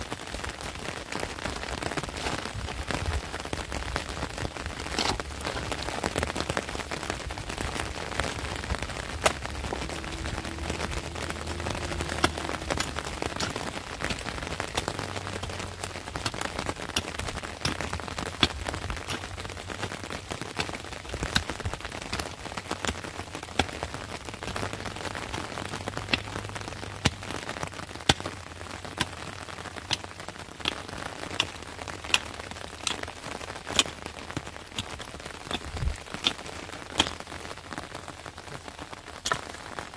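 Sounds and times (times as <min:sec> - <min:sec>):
light rain patter: 0:00.0 - 0:39.9
mattock chopping into stony soil: 0:07.7 - 0:37.5, 0:39.2 - 0:39.6.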